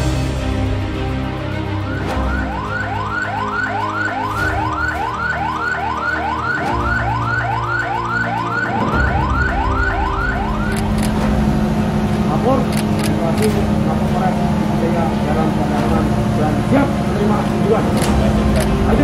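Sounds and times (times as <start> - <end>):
background music: 0.0 - 19.0
police siren yelping: 1.7 - 11.2.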